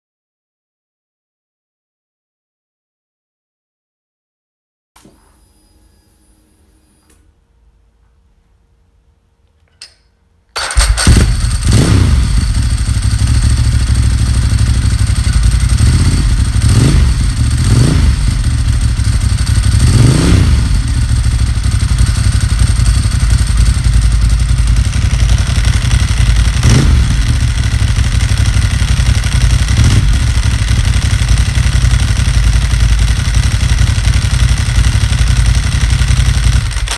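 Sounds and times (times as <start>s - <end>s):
dry clutch rattle: 10.6s - 36.9s
motorcycle engine revving: 10.6s - 36.9s.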